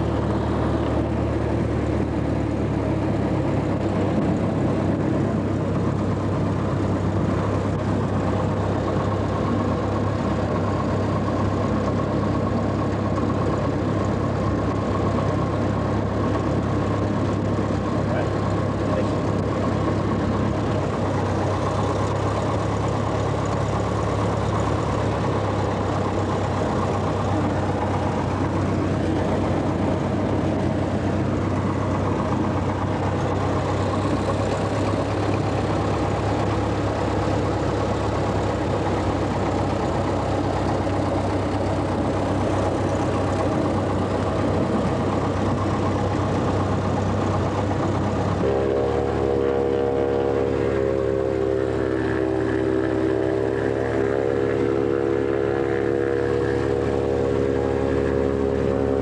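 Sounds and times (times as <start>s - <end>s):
light aircraft engine droning: 0.0s - 59.0s.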